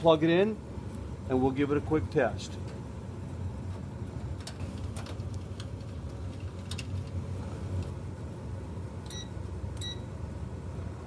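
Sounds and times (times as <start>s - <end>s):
steady low hum: 0.0s - 11.0s
short electronic beeps: 9.1s - 10.1s.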